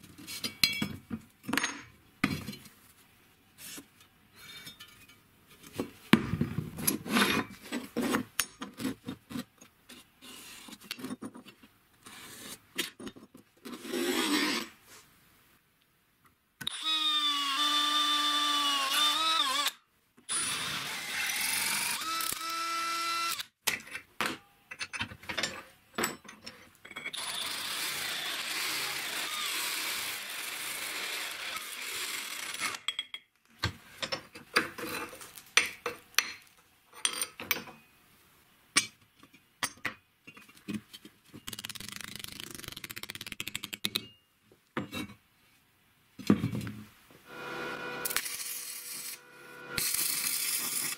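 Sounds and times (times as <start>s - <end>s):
clinks of metal being handled: 0.4s - 1.9s, 4.6s - 5.2s, 34.9s - 37.8s
electric drill boring through steel: 16.7s - 23.4s, 27.2s - 32.8s, 47.3s - 50.9s.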